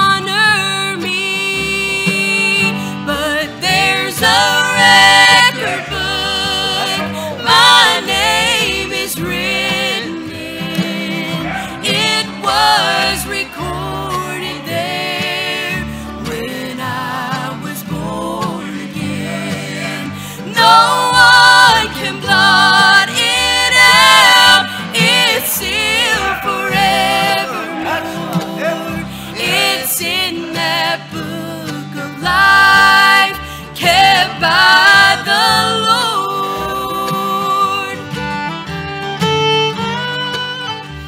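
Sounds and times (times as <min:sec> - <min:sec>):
women singing: 0:00.0 - 0:38.2
bluegrass band playing: 0:00.0 - 0:41.0.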